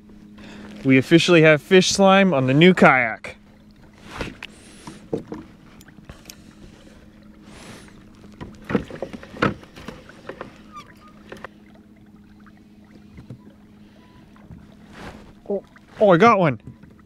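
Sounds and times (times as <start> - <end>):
electric trolling motor hum: 0.0 - 15.9.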